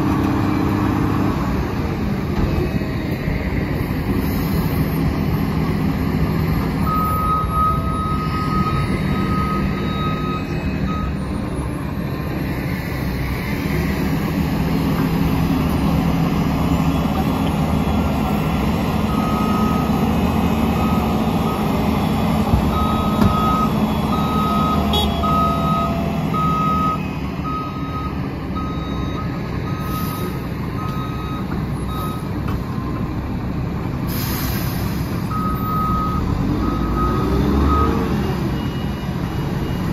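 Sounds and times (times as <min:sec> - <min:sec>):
truck and loader engines running: 0:00.0 - 0:39.9
reversing alarm beeping: 0:06.8 - 0:11.9, 0:16.5 - 0:20.1, 0:20.7 - 0:33.0, 0:35.3 - 0:39.9.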